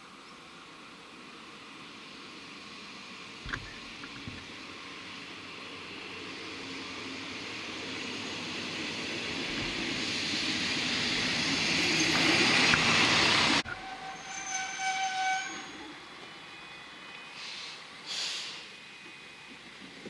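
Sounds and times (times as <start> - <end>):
diesel railcar engine and wheels: 0.0 - 20.0
railcar horn: 13.6 - 15.8.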